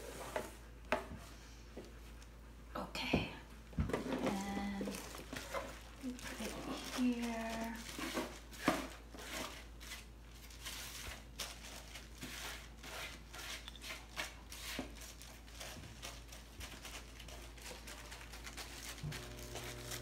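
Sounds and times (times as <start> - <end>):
plastic glove crinkling: 4.2 - 20.0
wet rustling of sauced cabbage: 4.3 - 20.0.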